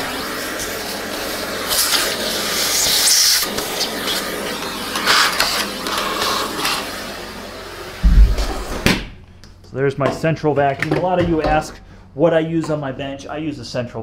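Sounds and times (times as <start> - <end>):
vacuum hose rushing hiss: 0.0 - 9.0.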